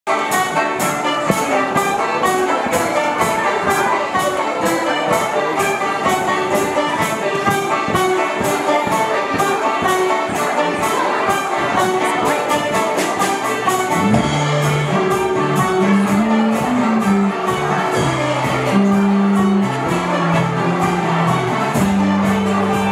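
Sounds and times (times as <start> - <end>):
jingling beat: 0.1 - 22.9
live band music: 0.1 - 22.9.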